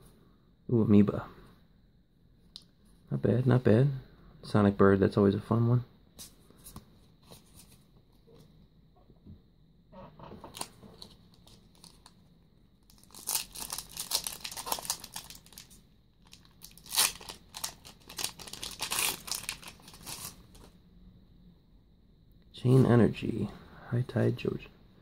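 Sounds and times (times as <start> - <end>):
foil pack tearing: 12.9 - 20.4
foil pack crinkling: 12.9 - 20.7.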